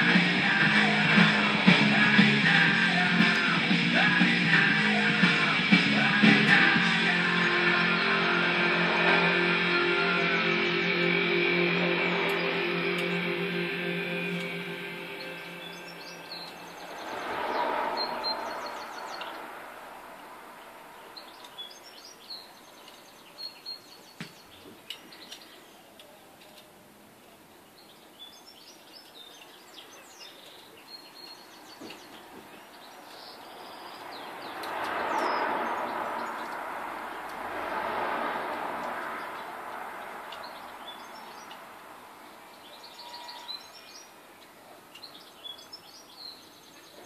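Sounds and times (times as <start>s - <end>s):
broad rushing noise: 0.0s - 21.4s, 33.4s - 42.6s
birds chirping: 0.0s - 47.0s
faint clicks: 40.3s - 40.6s.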